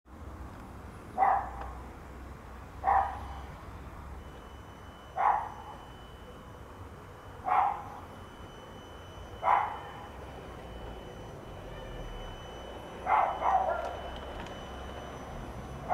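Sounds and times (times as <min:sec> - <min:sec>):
steady low hum: 0:00.1 - 0:15.9
dog barking: 0:01.2 - 0:01.6, 0:02.8 - 0:03.3, 0:05.2 - 0:05.6, 0:07.4 - 0:07.9, 0:09.4 - 0:09.8, 0:13.0 - 0:14.0.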